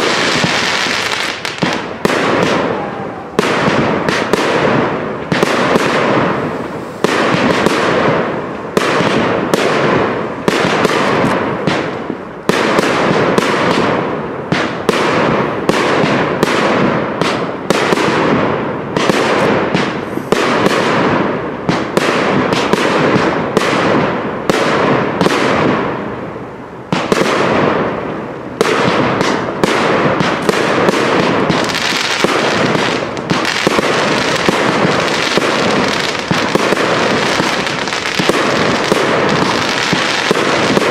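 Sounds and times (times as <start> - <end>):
fireworks bangs: 0.0 - 40.9.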